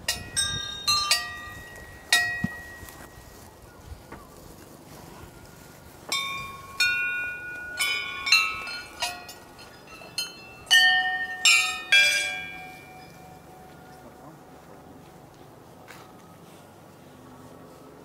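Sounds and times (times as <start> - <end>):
brass bells ringing: 0.0 - 3.4, 6.1 - 14.6.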